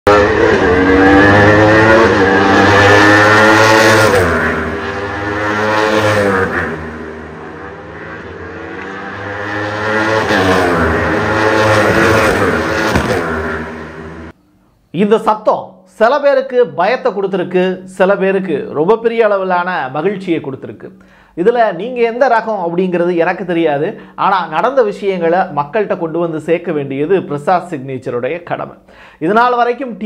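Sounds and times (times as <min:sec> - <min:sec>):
race car engines revving: 0:00.1 - 0:14.4.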